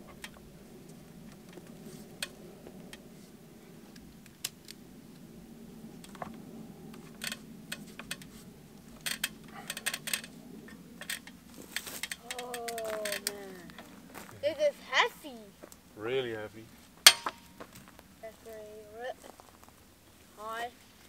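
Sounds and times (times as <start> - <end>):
low steady hum: 0.0 - 21.0
light metallic clicks and clinks: 17.0 - 17.5.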